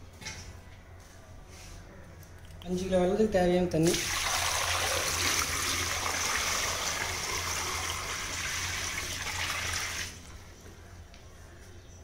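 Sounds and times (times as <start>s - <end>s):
water pouring into metal pan: 3.9s - 10.1s.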